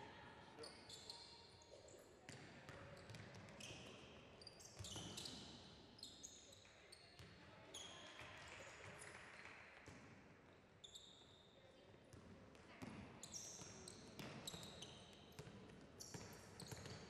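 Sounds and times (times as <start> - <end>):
sneakers squeaking on floor: 0.6 - 8.0, 10.8 - 11.4, 13.2 - 17.0.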